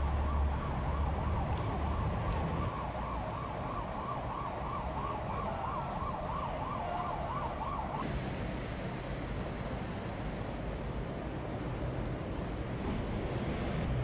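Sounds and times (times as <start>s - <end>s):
emergency siren yelping: 0.0s - 8.0s.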